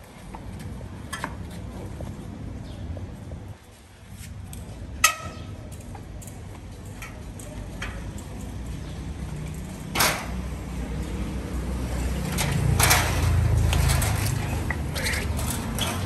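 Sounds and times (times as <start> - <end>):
metal clanks and knocks: 12.1 - 16.0.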